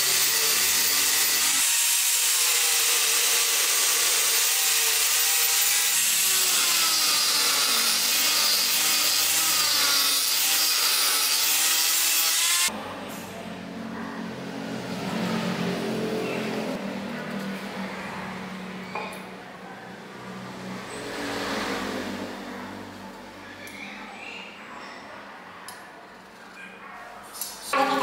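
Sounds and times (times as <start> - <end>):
angle grinder grinding wood: 0.0 - 12.7, 27.7 - 28.0.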